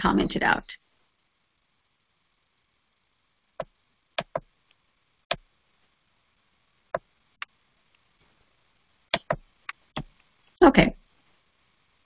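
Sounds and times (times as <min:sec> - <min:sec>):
keyboard and mouse clicks: 0:03.6 - 0:04.5, 0:09.1 - 0:10.2.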